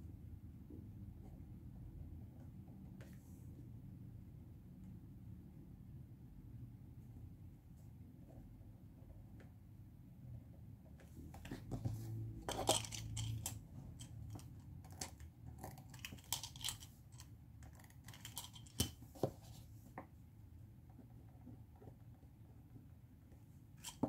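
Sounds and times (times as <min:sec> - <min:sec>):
pens clicking and tapping: 0:12.5 - 0:19.0.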